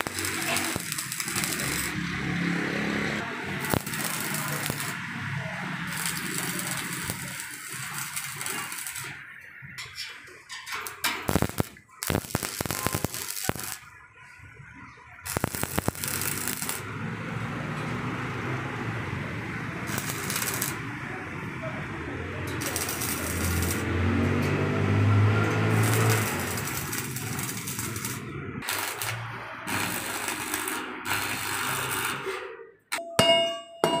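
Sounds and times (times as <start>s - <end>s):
sharp metallic clicks: 0.0s - 2.0s, 3.6s - 5.0s, 25.4s - 32.3s
welding arc crackling: 0.0s - 14.0s, 15.2s - 17.2s, 19.6s - 21.0s, 22.5s - 32.4s.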